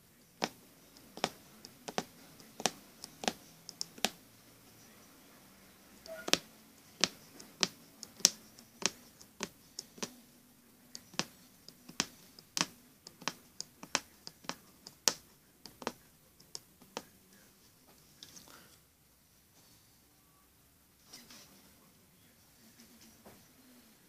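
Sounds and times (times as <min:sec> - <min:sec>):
needle popping through fabric: 0:00.4 - 0:04.2, 0:06.1 - 0:06.4, 0:07.0 - 0:10.2, 0:11.0 - 0:16.0.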